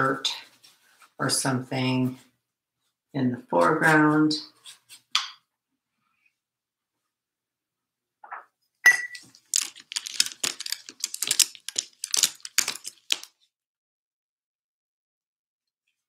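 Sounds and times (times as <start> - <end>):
photo paper rustling and crackling: 9.2 - 13.5.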